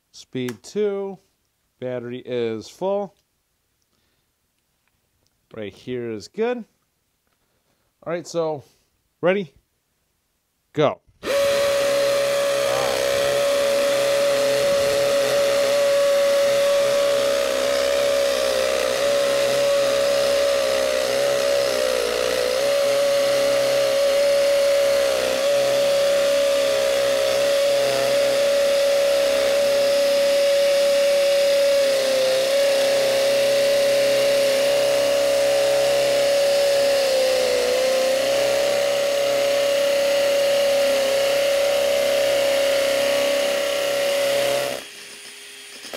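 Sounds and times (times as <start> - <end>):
hammer drill boring into concrete: 11.2 - 45.9.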